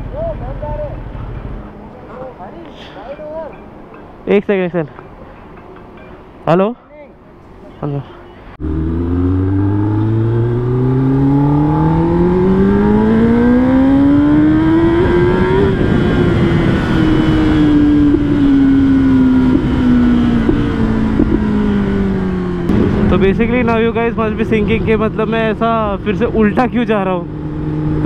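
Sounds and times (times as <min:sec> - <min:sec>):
motorcycle engine revving: 0:08.6 - 0:26.2.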